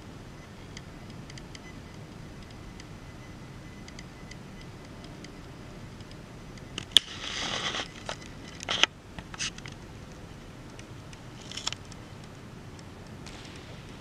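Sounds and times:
low room hum: 0.0 - 14.0
sharp clicks: 0.4 - 14.0
handling rustle: 3.6 - 14.0.

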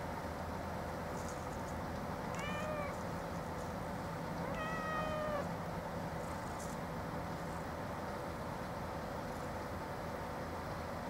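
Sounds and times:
low background noise: 0.0 - 11.0
cat meowing: 2.3 - 3.0, 4.4 - 5.5.

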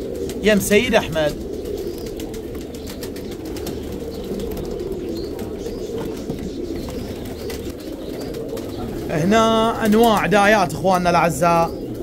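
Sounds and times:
pigeons cooing: 0.0 - 12.0.

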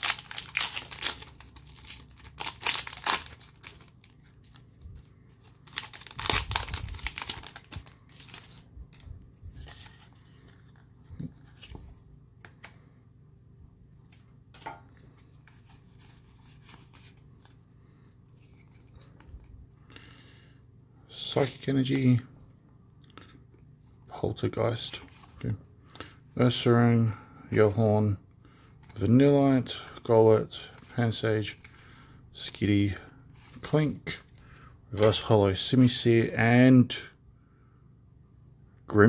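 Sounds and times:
foil wrapper tearing and crinkling: 0.0 - 4.6, 5.4 - 8.6
cards rustling and clicking: 0.0 - 12.9, 14.0 - 17.6, 18.3 - 19.6, 35.0 - 35.2.

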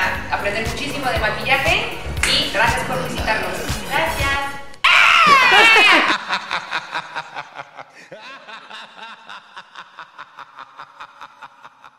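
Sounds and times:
pulsing laughter: 4.9 - 11.9.

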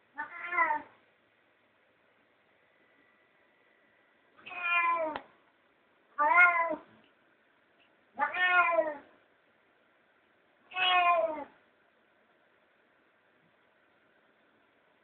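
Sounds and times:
cat meowing: 0.2 - 0.9, 4.4 - 5.2, 6.2 - 6.9, 8.2 - 9.1, 10.7 - 11.6.

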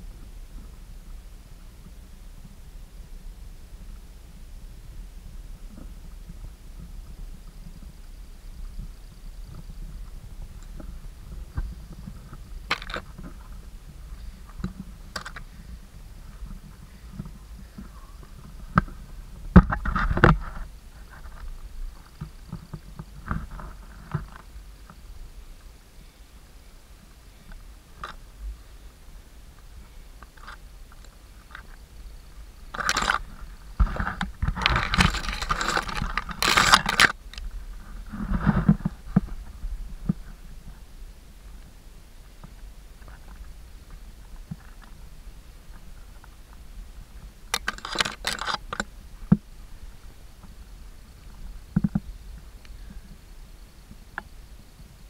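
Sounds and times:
wind rumble on microphone: 0.0 - 55.0
footsteps on stony path: 10.1 - 15.5, 32.7 - 40.3.

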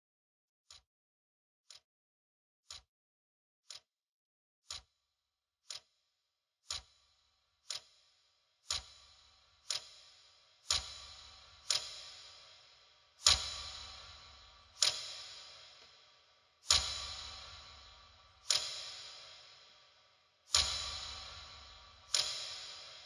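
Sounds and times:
clock-like ticking: 4.7 - 4.9, 6.7 - 23.0.

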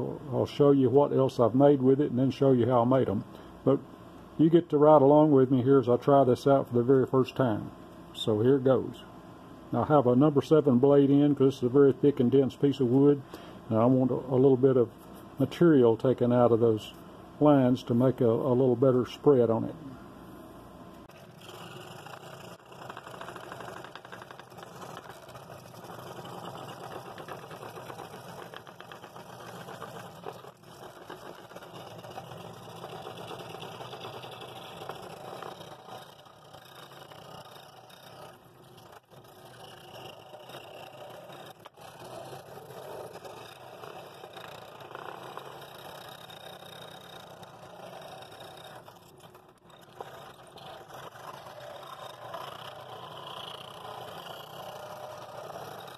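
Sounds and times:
scroll saw cutting wood: 21.0 - 55.9.

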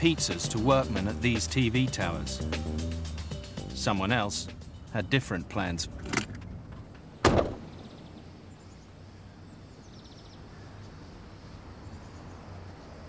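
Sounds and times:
outdoor background: 0.0 - 13.0
car door slamming: 7.2 - 7.8.

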